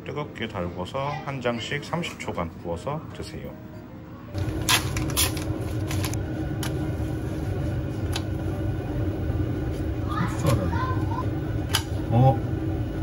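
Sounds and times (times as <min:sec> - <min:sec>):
range hood fan humming: 0:04.3 - 0:13.0.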